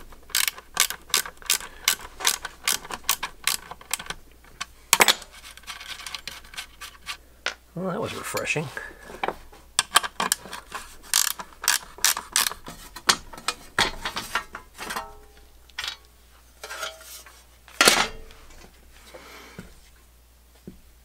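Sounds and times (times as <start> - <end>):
ratchet wrench clicking: 0.3 - 4.1, 11.1 - 12.5
metal panel scraping and knocking: 12.6 - 15.1.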